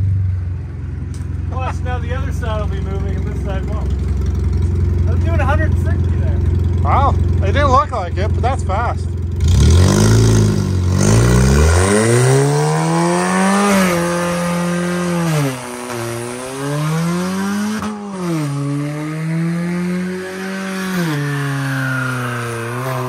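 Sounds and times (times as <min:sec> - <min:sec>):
car engine revving hard: 0:09.3 - 0:23.0.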